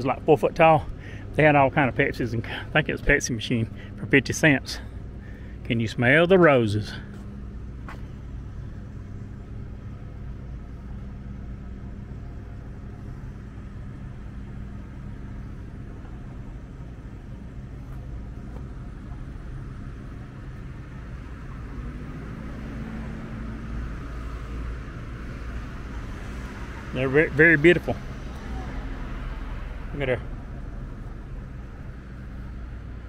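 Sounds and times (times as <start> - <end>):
low motor hum: 0.0 - 33.0.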